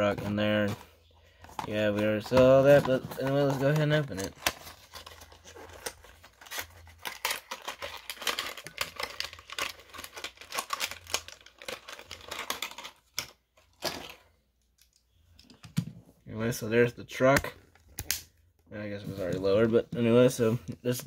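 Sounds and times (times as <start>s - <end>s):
packaging crinkling and tearing: 2.6s - 14.2s.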